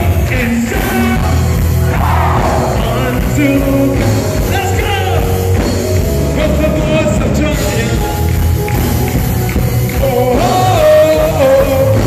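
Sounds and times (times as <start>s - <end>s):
band playing: 0.0s - 12.0s
person singing into a microphone: 10.0s - 12.0s.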